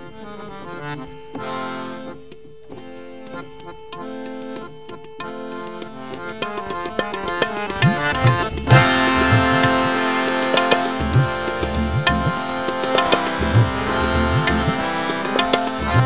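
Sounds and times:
harmonium melody: 0.0s - 16.0s
tabla drumming: 3.6s - 16.0s.

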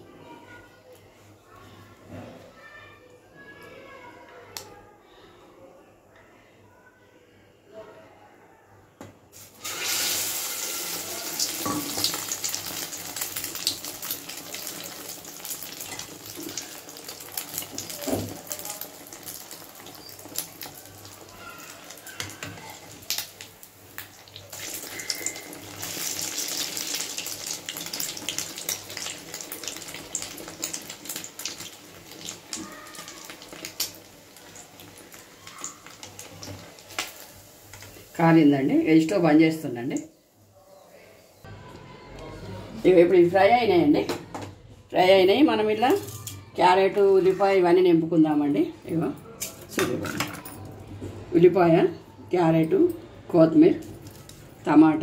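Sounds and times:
bread deep-frying in hot oil: 9.3s - 40.4s, 53.5s - 55.0s.

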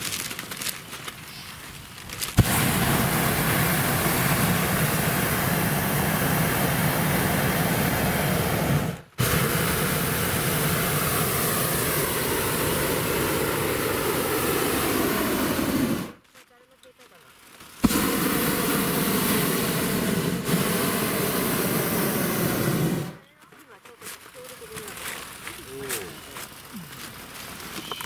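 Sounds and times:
propane burner roaring: 2.2s - 16.2s, 17.8s - 23.2s.

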